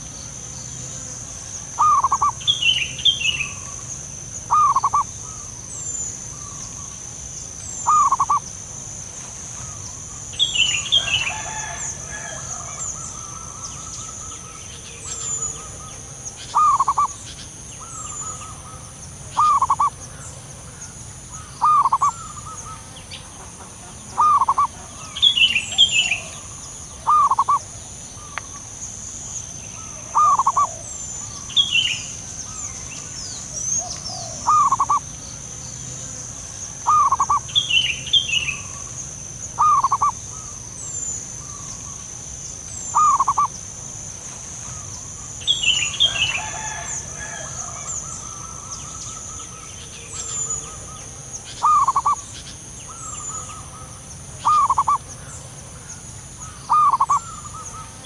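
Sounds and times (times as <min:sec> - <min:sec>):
birds chirping: 0:00.0 - 0:08.6, 0:09.5 - 0:43.8, 0:44.6 - 0:58.0
dove cooing: 0:01.7 - 0:02.5, 0:04.5 - 0:05.4, 0:07.8 - 0:08.4, 0:16.5 - 0:17.2, 0:19.4 - 0:20.0, 0:21.6 - 0:28.4, 0:29.8 - 0:31.7, 0:33.6 - 0:35.1, 0:36.8 - 0:37.5, 0:39.6 - 0:40.5, 0:42.9 - 0:43.5, 0:51.6 - 0:52.2, 0:52.9 - 0:55.0, 0:56.7 - 0:58.0.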